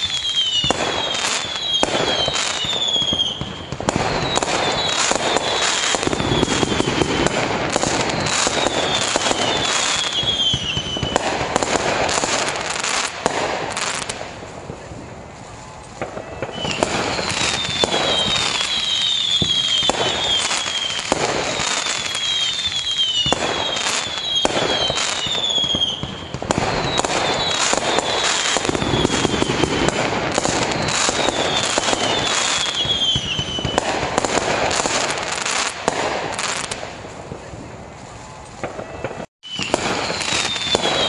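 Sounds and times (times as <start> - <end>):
fireworks bangs: 0.0 - 41.0
whistles falling in pitch: 16.2 - 26.0.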